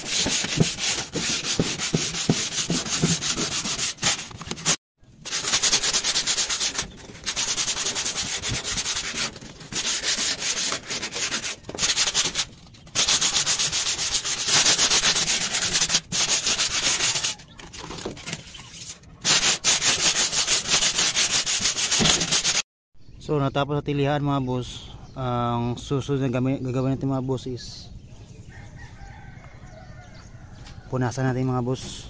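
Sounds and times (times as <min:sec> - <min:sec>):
sandpaper rubbing metal roof sheet: 0:00.0 - 0:22.6.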